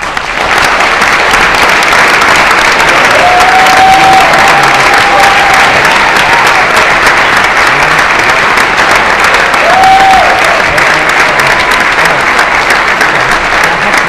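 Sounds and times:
audience applause: 0.0 - 14.0
person cheering: 2.9 - 6.8, 9.4 - 11.7.

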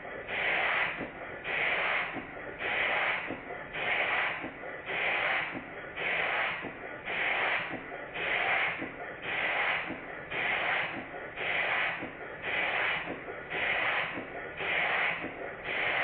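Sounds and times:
steam engine exhaust hissing: 0.0 - 16.0.

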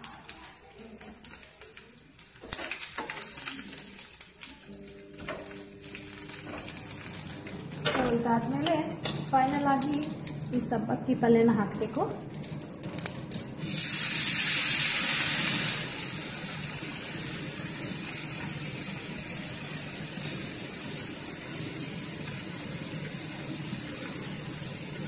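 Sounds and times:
herbs sizzling in hot oil: 0.0 - 25.0.

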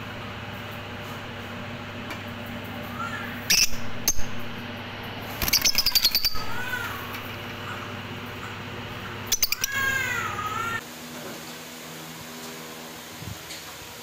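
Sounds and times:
lovebirds chirping: 5.2 - 10.8.

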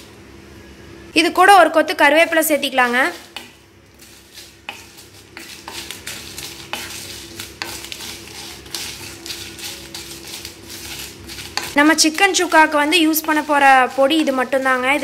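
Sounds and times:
spatula scraping clay pot: 2.7 - 15.0
seeds rattling in pot: 4.0 - 15.0.

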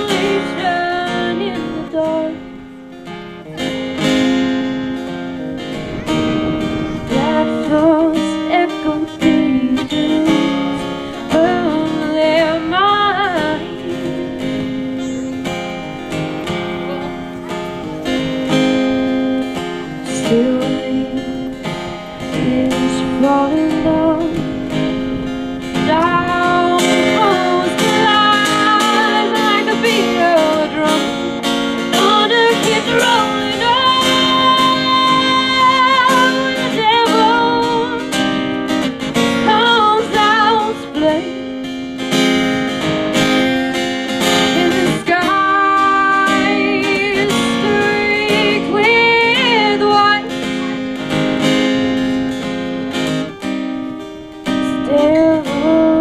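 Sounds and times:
woman singing: 0.0 - 2.6, 7.0 - 15.4, 19.5 - 24.9, 25.8 - 41.5, 44.2 - 51.8, 54.5 - 56.0
strummed acoustic guitar: 0.0 - 56.0.

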